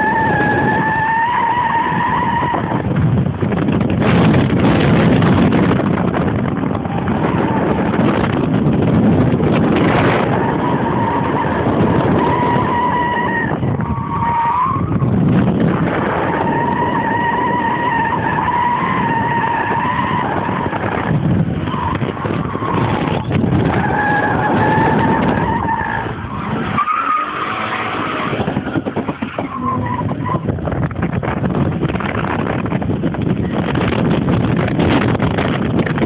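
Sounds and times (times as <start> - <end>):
car engine running hard: 0.0 - 36.0
tyres squealing: 21.6 - 30.5.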